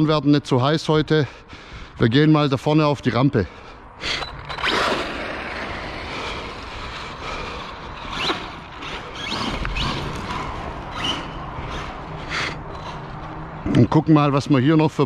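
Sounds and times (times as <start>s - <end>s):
electric motor whining: 4.4s - 13.1s
tyre noise on dirt: 7.6s - 13.5s.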